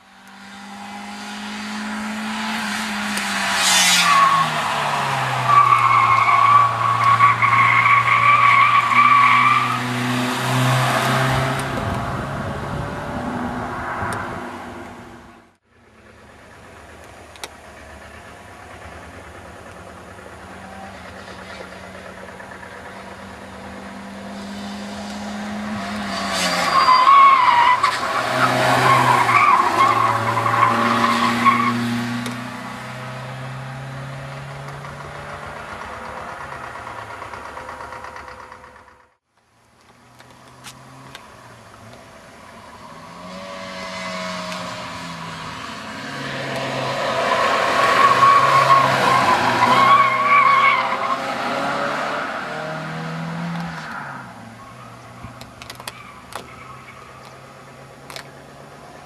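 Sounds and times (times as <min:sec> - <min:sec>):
car engine: 0:00.0 - 0:59.0
tyres squealing: 0:26.2 - 0:31.8, 0:47.0 - 0:51.4.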